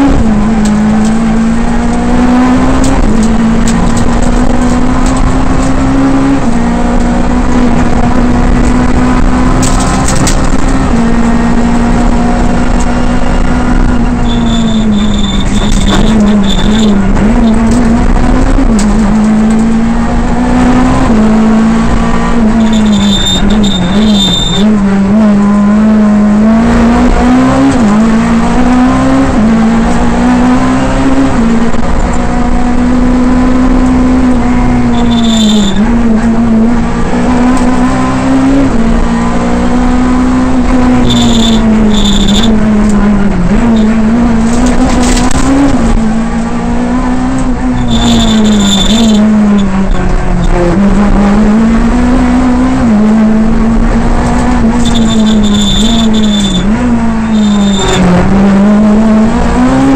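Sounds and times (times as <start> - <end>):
rally car engine revving: 0.0 - 59.9
short high-pitched tones: 14.2 - 17.0, 22.5 - 24.7, 34.9 - 35.8, 41.0 - 42.5, 47.8 - 49.7, 54.8 - 56.7, 57.3 - 58.1.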